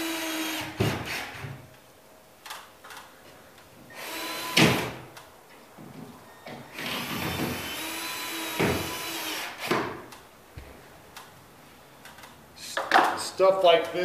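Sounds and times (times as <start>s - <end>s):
cordless drill motor whine: 3.9s - 4.8s, 6.7s - 9.6s.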